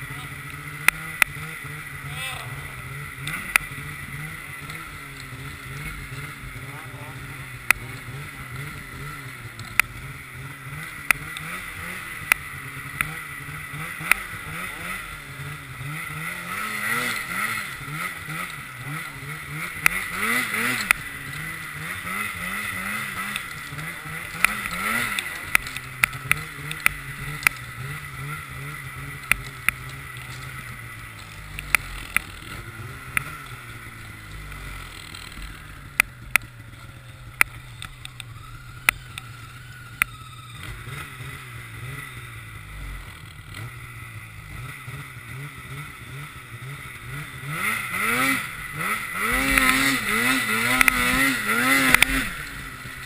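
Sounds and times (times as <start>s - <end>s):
snowmobile engine revving: 0.0s - 53.0s
sharp clicks: 3.2s - 3.7s, 31.1s - 32.5s, 49.3s - 51.2s, 51.8s - 52.5s.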